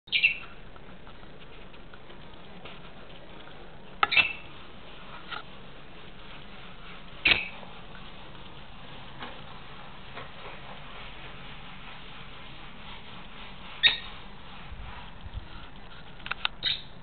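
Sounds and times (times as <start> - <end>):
lovebirds chirping: 0.1 - 0.5.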